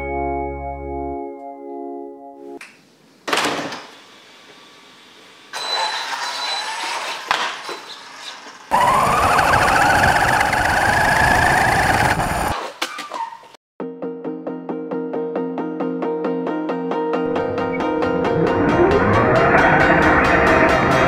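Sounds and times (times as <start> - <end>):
toy truck motor whine: 5.6 - 7.2, 8.7 - 12.6
tyre noise: 7.5 - 13.5.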